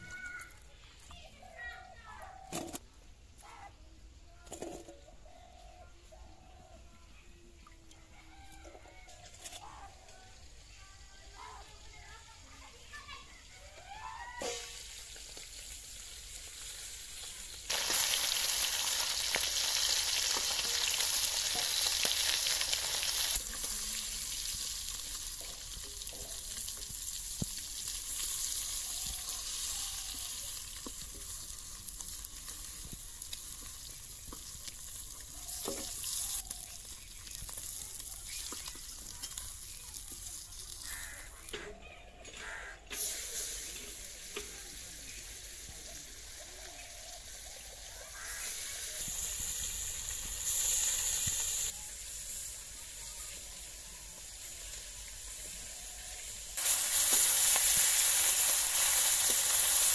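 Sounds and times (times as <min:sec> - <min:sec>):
fish sizzling in hot oil: 0:11.3 - 0:41.6, 0:42.9 - 0:59.9.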